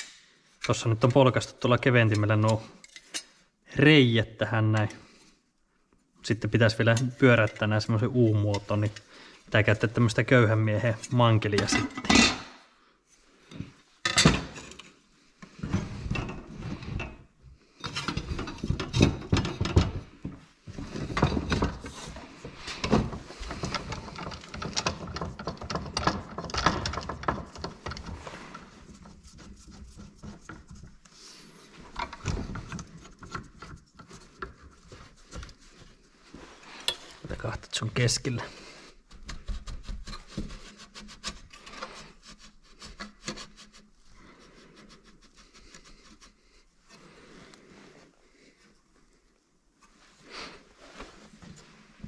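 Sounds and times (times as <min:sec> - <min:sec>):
metal clanks and knocks: 0:17.8 - 0:28.3.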